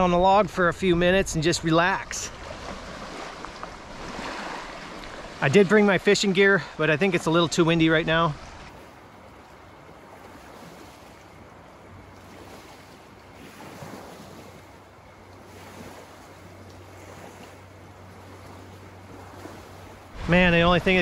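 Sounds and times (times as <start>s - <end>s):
small waves lapping on shore: 0.0s - 21.0s
wind gusting: 18.0s - 21.0s.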